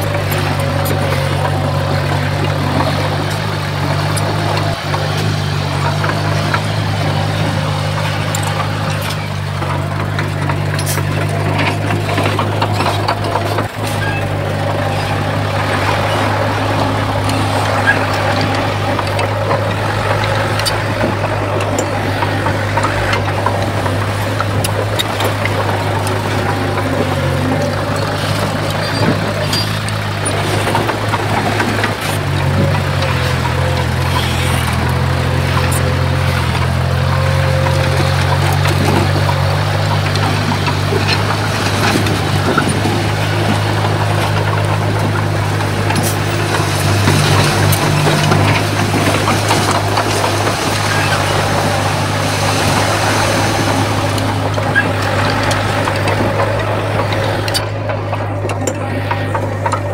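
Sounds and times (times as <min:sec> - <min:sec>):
heavy diesel engine running: 0:00.0 - 0:59.9.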